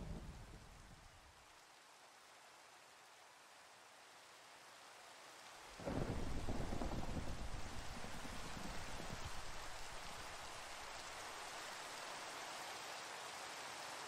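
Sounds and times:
steady rain: 0.0 - 14.0
thunder rolling: 5.8 - 11.3.

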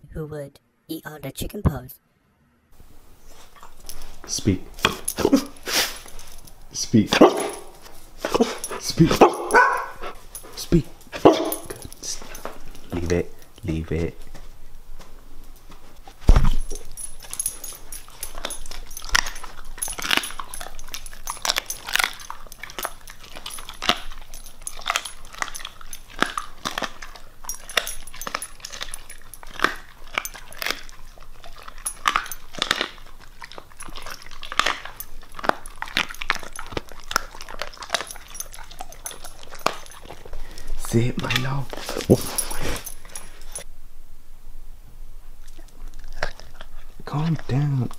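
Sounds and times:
dog chewing and crunching: 3.2 - 43.7, 45.2 - 47.9
heavy thump: 16.2 - 16.6.

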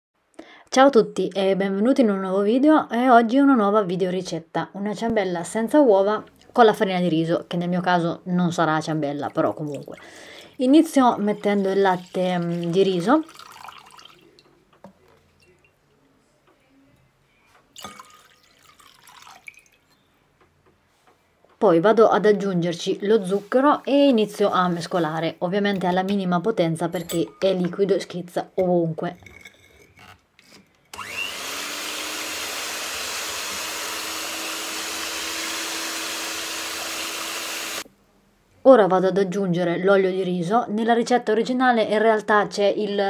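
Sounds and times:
liquid pouring into glass bowl: 11.2 - 14.5, 17.7 - 20.1
electric hand mixer whirring: 30.9 - 37.9.

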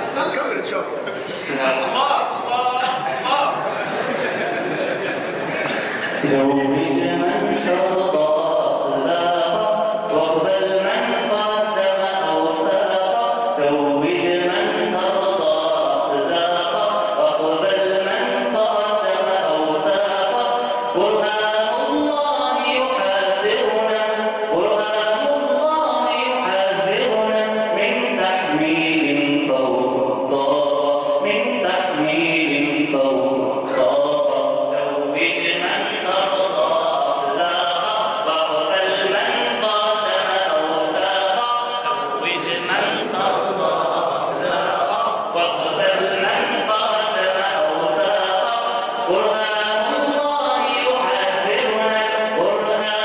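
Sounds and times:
man singing unaccompanied: 6.2 - 53.0.

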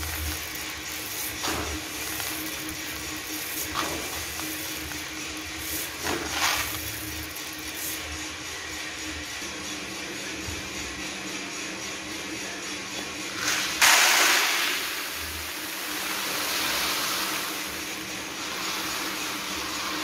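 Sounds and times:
coffee beans pouring: 0.0 - 8.7, 13.4 - 20.0
hum and hiss: 0.0 - 9.0, 13.3 - 20.0.

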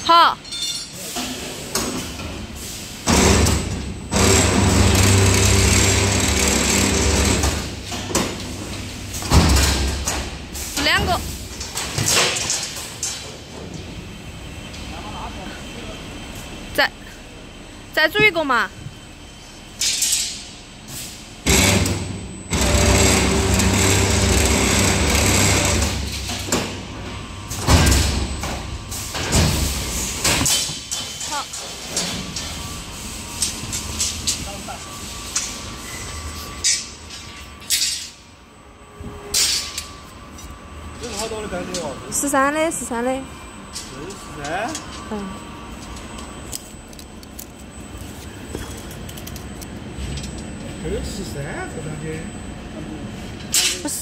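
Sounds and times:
bending machine rollers running: 1.2 - 16.4, 21.4 - 38.2
bending machine feeding steel bar: 4.1 - 7.7, 21.5 - 26.5.

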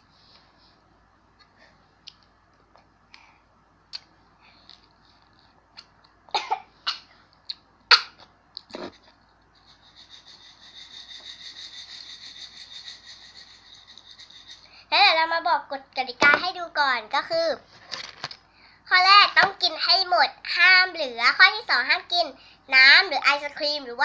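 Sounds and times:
child coughing: 6.3 - 7.1, 7.9 - 8.2.

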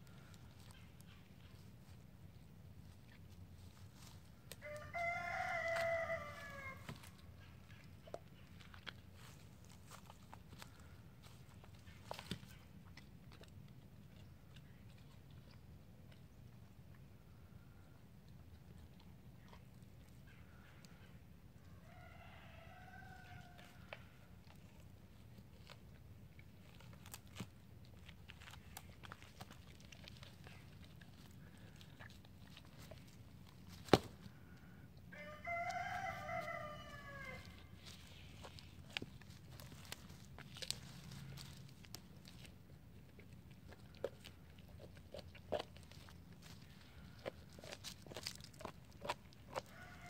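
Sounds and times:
rooster crowing: 4.6 - 7.0, 21.8 - 23.7, 35.1 - 37.7, 49.6 - 50.0
dog gnawing bone: 23.6 - 34.0, 35.6 - 50.0
bone cracking: 25.2 - 34.3, 35.5 - 50.0.

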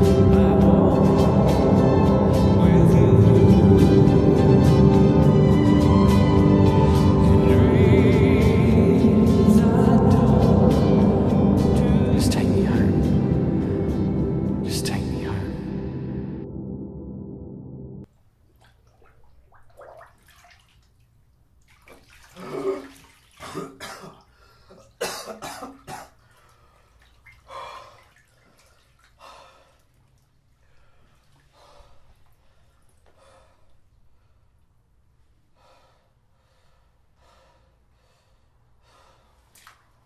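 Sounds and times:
man coughing: 22.4 - 26.2
heavy breathing: 29.2 - 30.0, 30.6 - 34.6, 35.5 - 39.6.

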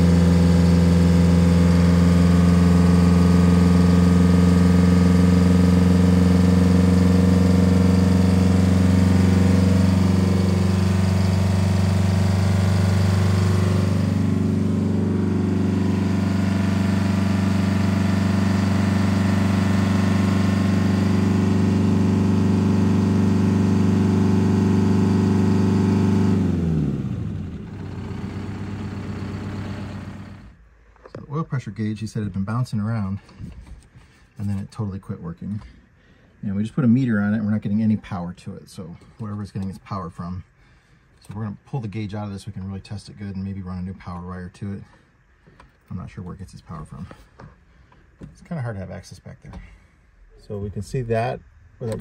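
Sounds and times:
bus diesel engine idling: 6.8 - 24.2, 26.9 - 30.6.

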